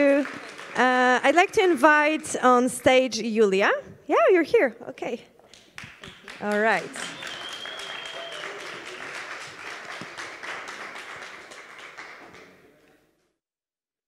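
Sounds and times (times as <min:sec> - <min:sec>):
audience applauding: 0:00.0 - 0:02.3, 0:05.6 - 0:12.8.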